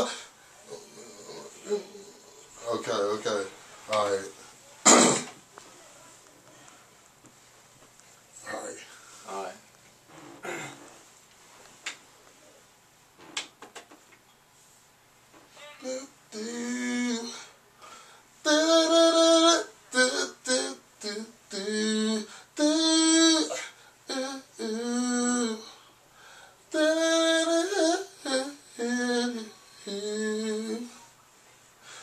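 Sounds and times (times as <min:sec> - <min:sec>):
man singing wordless melody: 0:00.0 - 0:04.3, 0:15.7 - 0:17.6, 0:18.4 - 0:25.8, 0:26.7 - 0:31.1.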